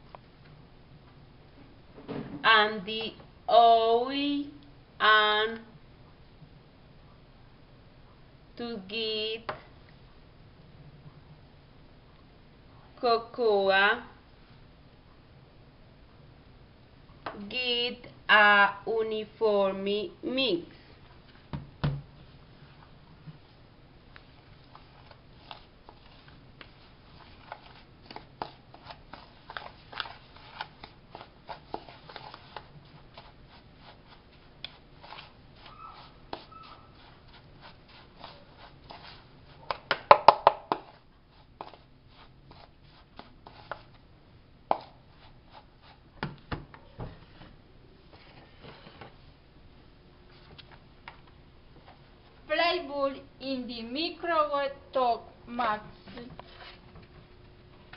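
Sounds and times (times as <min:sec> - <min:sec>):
spoon scraping plastic bowl: 0:24.7 - 0:39.3.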